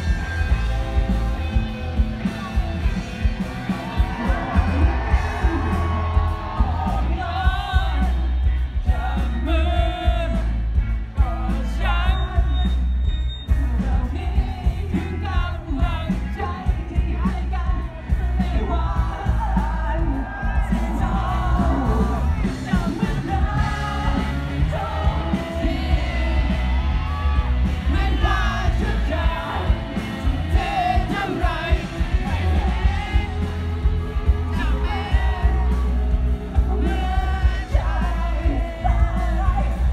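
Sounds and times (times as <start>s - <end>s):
heavy booming bass: 0.0s - 12.6s, 13.6s - 39.9s
live rock band playing: 0.0s - 39.9s
man singing: 3.9s - 12.9s, 13.5s - 39.9s.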